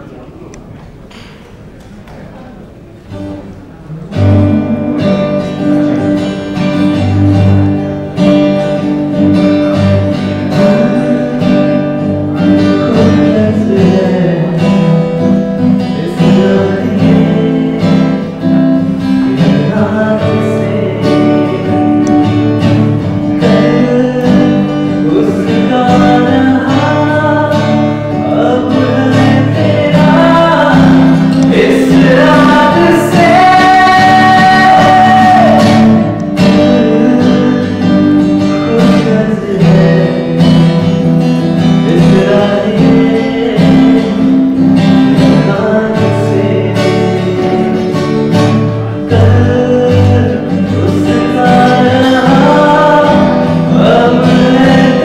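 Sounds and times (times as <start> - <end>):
acoustic guitar strumming: 0.0 - 55.0
men singing into microphones: 10.4 - 40.8, 41.6 - 48.2, 49.0 - 55.0.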